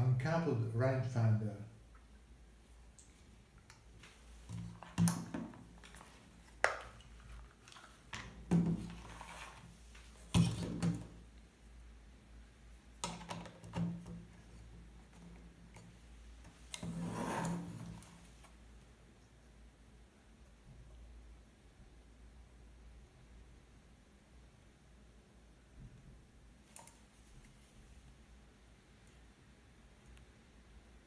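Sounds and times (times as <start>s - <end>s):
rubbing sound: 8.8s - 10.3s.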